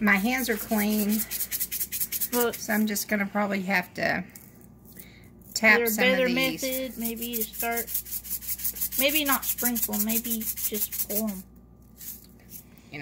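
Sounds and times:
sprinkles rattling in shaker bottle: 0:00.5 - 0:02.9, 0:06.6 - 0:12.7.

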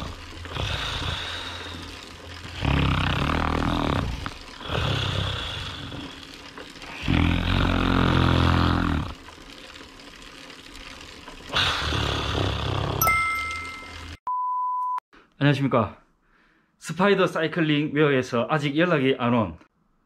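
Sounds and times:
man snoring loudly: 0:00.0 - 0:09.2, 0:11.5 - 0:13.0.

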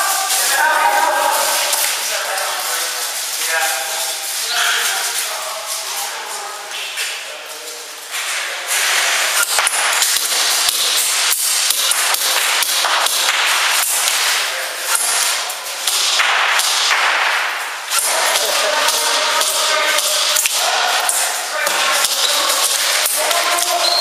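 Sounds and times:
airsoft guns firing: 0:09.4 - 0:21.0.

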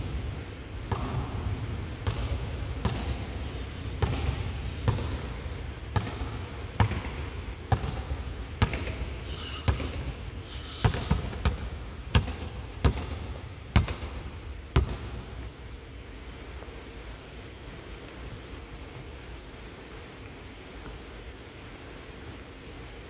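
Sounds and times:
basketball bouncing on hardwood: 0:02.0 - 0:03.2, 0:04.0 - 0:05.3, 0:05.9 - 0:09.0, 0:09.7 - 0:10.1, 0:10.8 - 0:15.1.

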